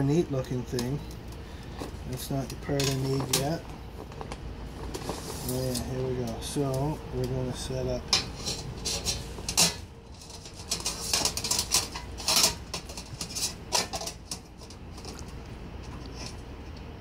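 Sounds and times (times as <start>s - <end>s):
metal panels clinking and scraping: 1.7s - 7.0s, 7.6s - 16.4s.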